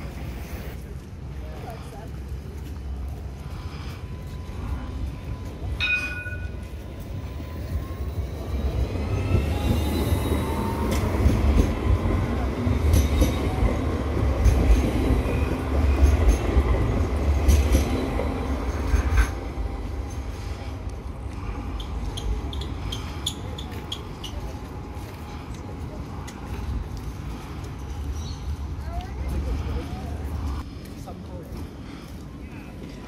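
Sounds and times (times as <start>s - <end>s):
tram wheels rumbling on rails: 0.0s - 33.0s
tram whine rising in pitch: 4.2s - 12.5s.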